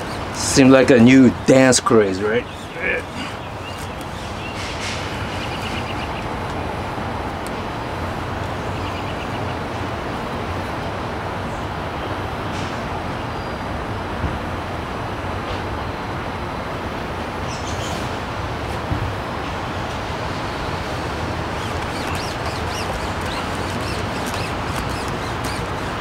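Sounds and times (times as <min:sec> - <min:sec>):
outdoor rumble with hiss: 0:00.0 - 0:26.0
faint rapid high ticks: 0:21.5 - 0:26.0.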